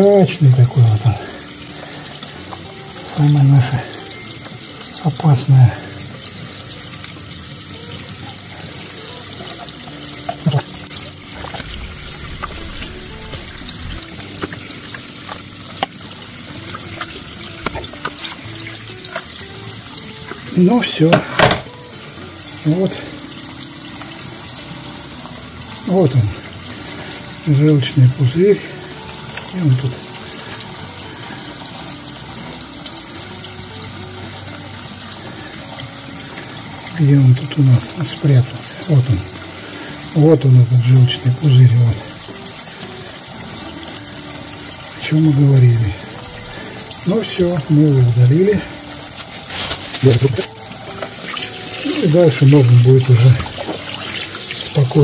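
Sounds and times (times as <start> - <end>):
tap water running into sink: 0.0 - 55.0
wet squelches of fish gutting: 49.1 - 52.1.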